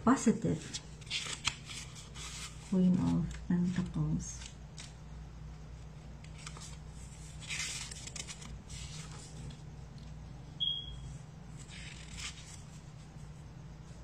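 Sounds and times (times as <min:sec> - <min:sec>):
high beep: 0:10.6 - 0:11.1.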